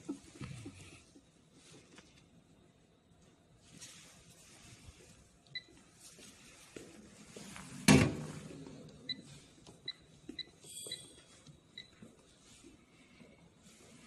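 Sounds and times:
short electronic beeps: 9.9 - 11.9.

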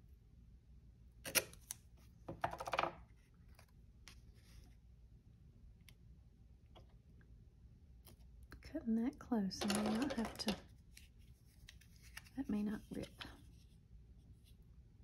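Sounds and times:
paper rustling: 9.9 - 13.7.

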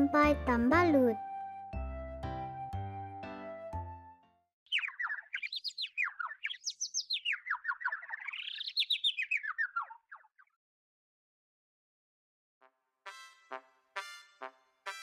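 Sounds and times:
bird chirping: 4.7 - 10.6.

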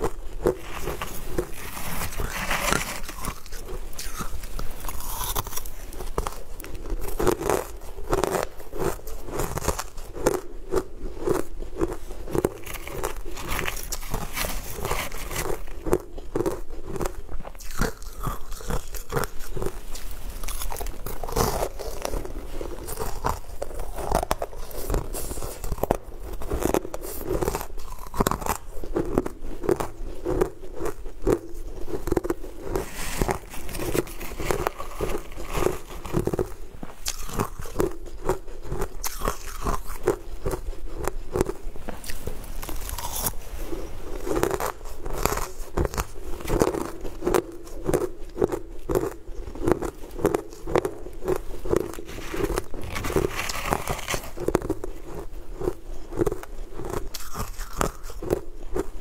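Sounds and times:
crunching and chewing food: 0.0 - 59.0.

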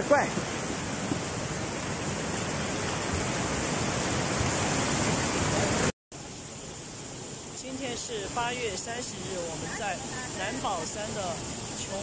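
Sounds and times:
flood torrent rushing: 0.0 - 12.0.

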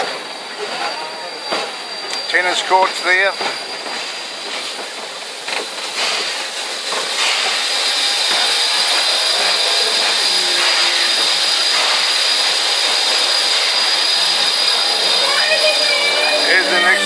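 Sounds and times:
steam locomotive hissing: 0.0 - 17.0.

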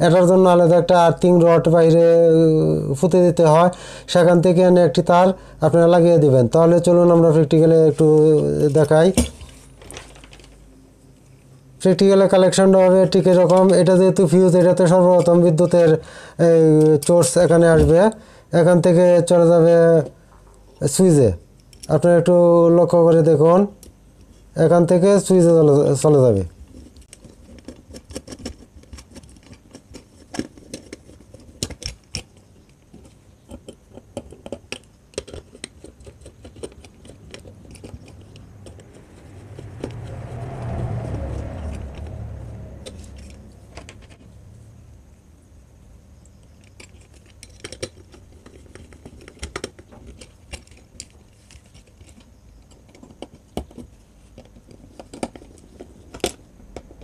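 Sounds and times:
low rumble: 38.3 - 45.3.

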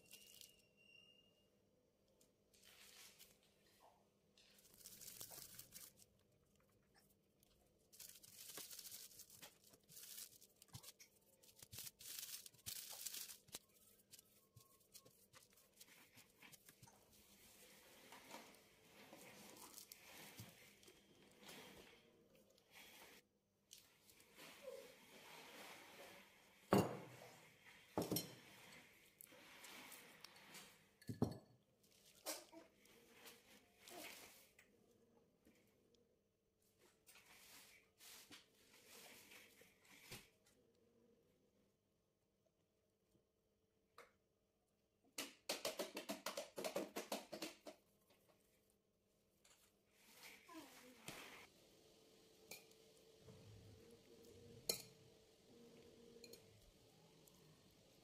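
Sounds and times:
plastic sheet crinkling: 4.4 - 6.7, 7.4 - 18.1
ceramic bowls and spoons clinking: 30.4 - 31.7, 56.0 - 56.6.

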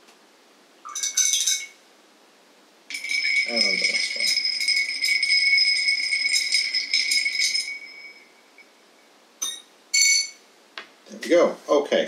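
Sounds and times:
ice stirred in glasses: 2.9 - 8.3
single glass clinks: 2.9 - 8.7, 9.4 - 10.4.

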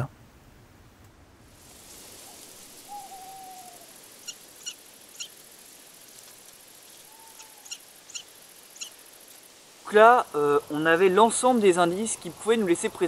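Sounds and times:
faint night-time hiss: 0.0 - 13.0
owl hooting: 2.2 - 5.4, 6.9 - 9.0.

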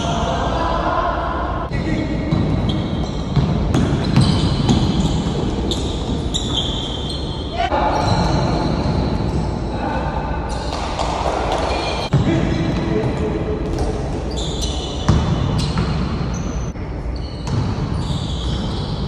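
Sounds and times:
basketball bouncing: 2.3 - 6.6, 15.1 - 16.3, 17.4 - 17.8
shoe squeaks on court: 2.7 - 9.6, 14.2 - 19.0.

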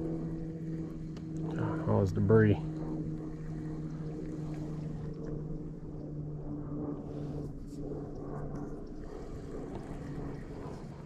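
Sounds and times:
boat motor humming: 0.0 - 6.5, 9.0 - 11.0
wind rumble on microphone: 0.0 - 11.0.

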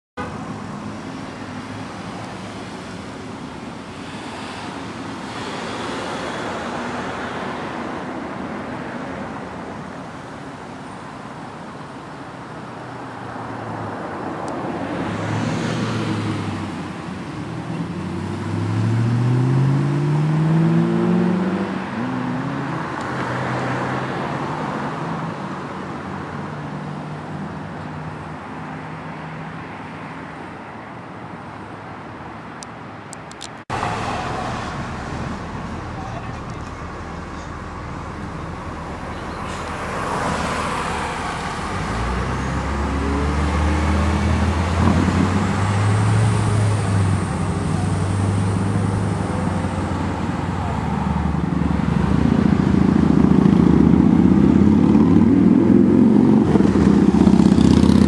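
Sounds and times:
cars passing: 0.2 - 58.0
vehicle accelerating: 14.9 - 25.1, 33.7 - 58.0.

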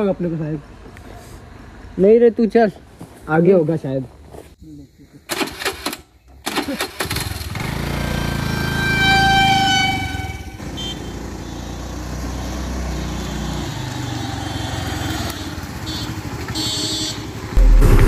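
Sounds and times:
scooter engine running: 7.0 - 9.1
scooter horn: 8.2 - 12.1, 13.1 - 17.6.

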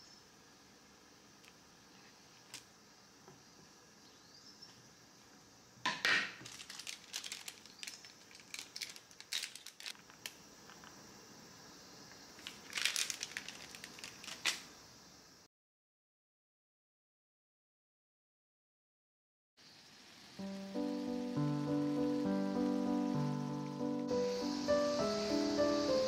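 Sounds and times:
spice packet crinkling: 6.4 - 10.8, 12.4 - 14.7.

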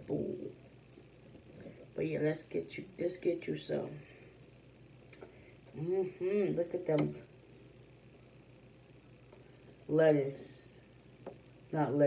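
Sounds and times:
person speaking: 0.0 - 0.6, 1.5 - 4.2, 5.7 - 7.3, 9.8 - 10.8, 11.7 - 12.0.

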